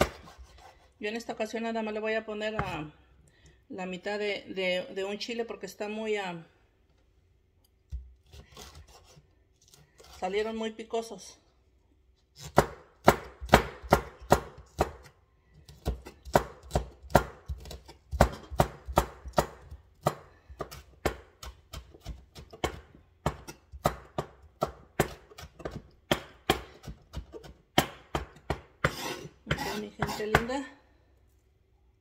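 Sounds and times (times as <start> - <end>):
knife chopping on board: 0.0 - 0.7, 12.4 - 15.1, 15.7 - 30.6.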